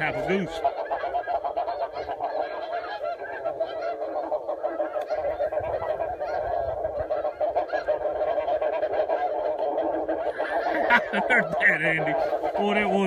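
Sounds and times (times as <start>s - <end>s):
geese honking: 0.0s - 13.0s.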